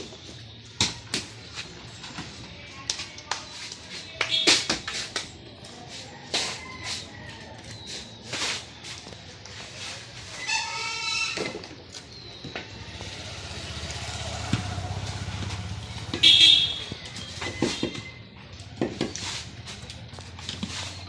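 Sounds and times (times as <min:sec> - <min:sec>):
vehicle passing: 0:12.7 - 0:17.0.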